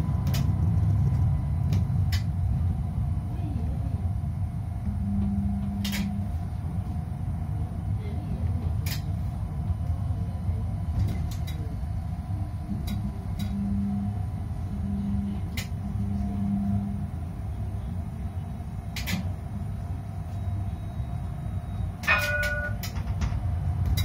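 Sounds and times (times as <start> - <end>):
hum: 0.0 - 24.0
tram rumble: 0.0 - 24.0.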